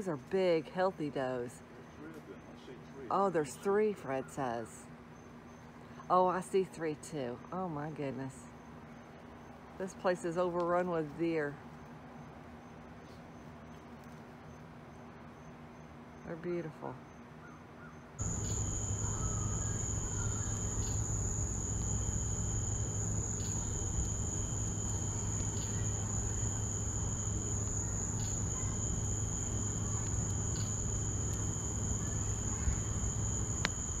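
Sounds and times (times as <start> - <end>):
lower insect trill: 4.9 - 34.0
high insect trill: 17.0 - 34.0
low steady hum: 18.2 - 34.0.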